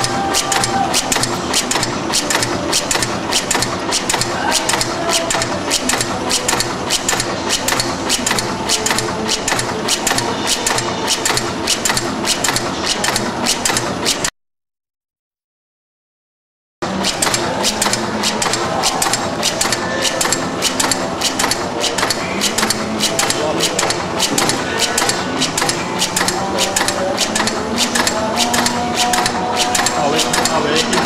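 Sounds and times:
laminating machine clacking: 0.0s - 14.3s, 16.8s - 31.0s.

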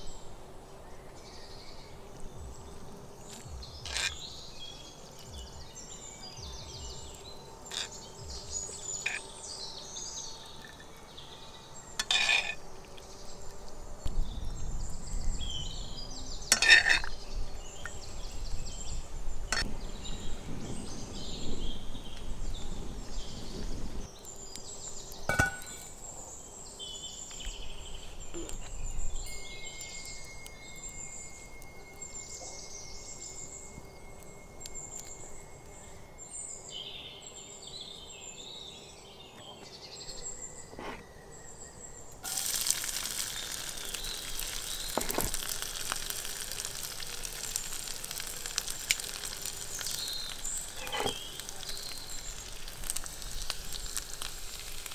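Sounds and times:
birds chirping: 0.0s - 54.9s
garlic sizzling in hot oil: 3.3s - 5.5s, 6.7s - 9.3s, 12.0s - 13.2s, 16.4s - 17.2s, 23.0s - 26.1s, 42.2s - 54.9s.

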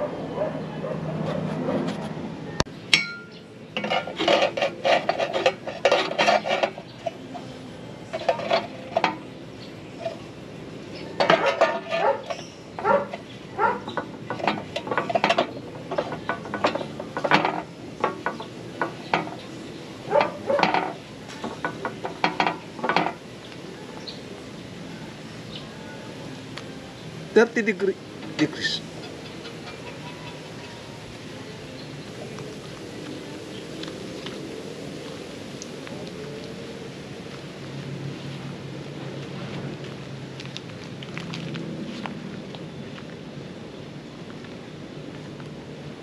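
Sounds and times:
metal clamp parts clinking: 11.2s - 13.2s, 13.8s - 19.5s.

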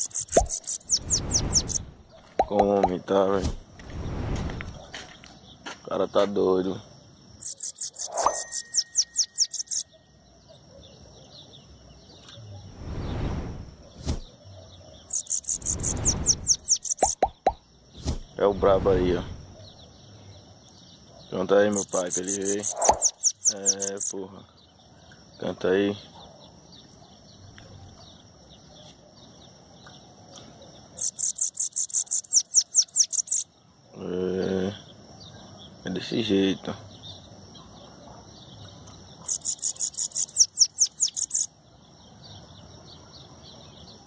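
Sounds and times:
bird singing high notes: 0.0s - 1.8s, 7.4s - 10.1s, 15.1s - 17.4s, 21.7s - 24.2s, 39.3s - 41.5s
faint bird chirps: 0.0s - 44.0s
soft rush of noise: 12.6s - 14.3s.

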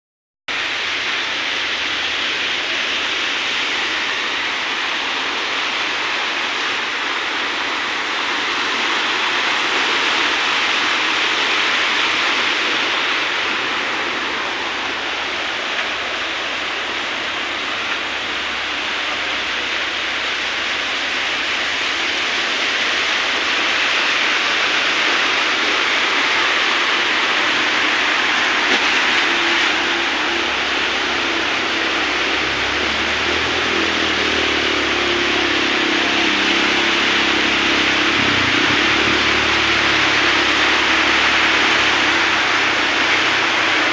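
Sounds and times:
heavy rain downpour: 0.5s - 43.9s
rushing floodwater: 0.5s - 43.9s.

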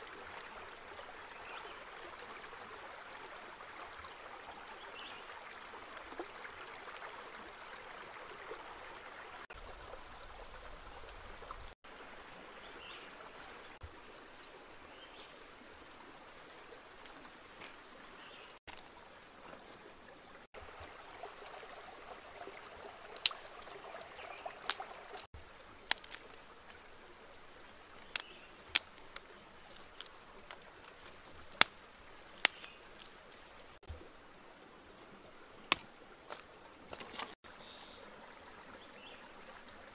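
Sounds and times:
stream trickling over rocks: 0.0s - 39.9s
dry twigs cracking: 23.1s - 23.8s, 24.6s - 25.2s, 25.8s - 26.8s, 28.0s - 33.7s.

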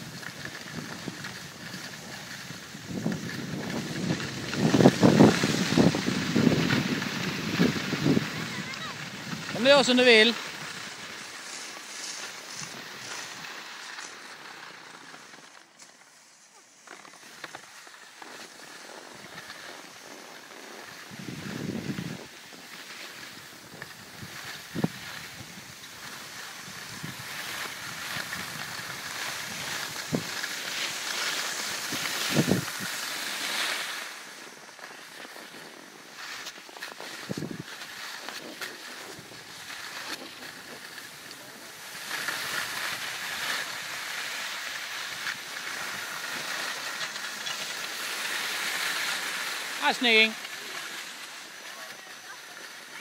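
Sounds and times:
wind on microphone: 0.0s - 9.6s, 21.0s - 22.3s, 23.6s - 25.8s, 26.6s - 30.4s, 31.7s - 33.0s, 37.2s - 37.7s
skis sliding over snow: 0.0s - 53.0s.

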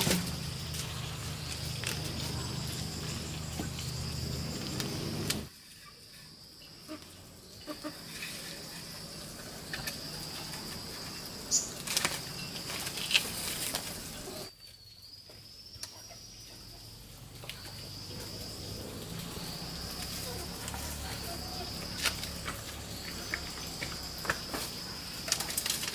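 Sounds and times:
high-pitched insect drone: 0.0s - 5.5s
wood fire crackling: 0.0s - 5.5s, 17.3s - 25.9s.

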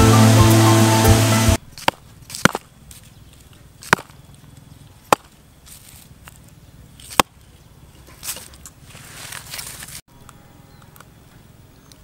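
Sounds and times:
stick knocking hard lump: 3.9s - 4.1s.

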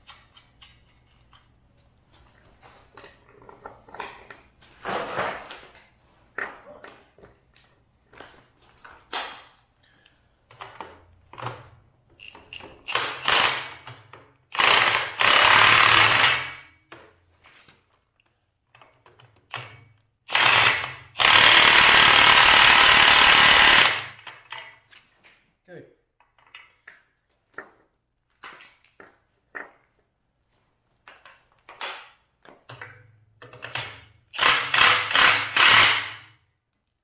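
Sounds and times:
impact wrench hammering: 12.2s - 16.8s, 19.5s - 24.5s, 33.5s - 36.4s.

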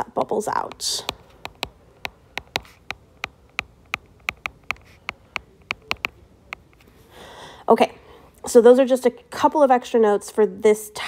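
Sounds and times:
stylus tapping on glass screen: 0.7s - 6.8s.

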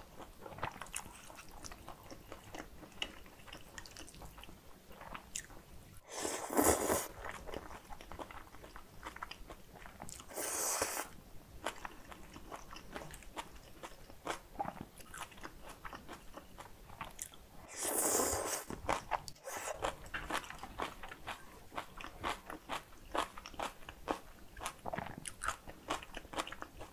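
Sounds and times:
loud slurps: 6.1s - 7.1s, 10.3s - 11.1s, 17.7s - 18.7s.

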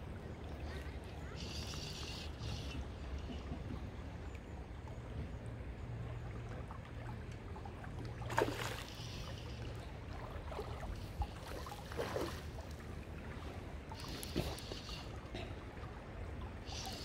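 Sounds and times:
river water running: 0.0s - 17.0s
water sloshing splashes: 6.2s - 17.0s.

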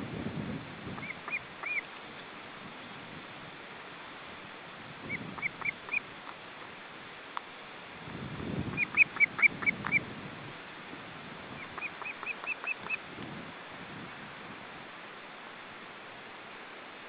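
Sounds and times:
wind rumbling on microphone: 0.0s - 6.8s, 7.9s - 15.1s
ospreys calling: 1.0s - 2.0s, 5.0s - 6.4s, 8.7s - 10.1s, 11.5s - 13.0s.

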